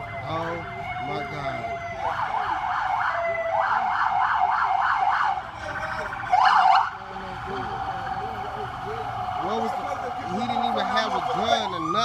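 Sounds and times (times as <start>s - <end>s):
police siren yelping: 0.0s - 12.0s.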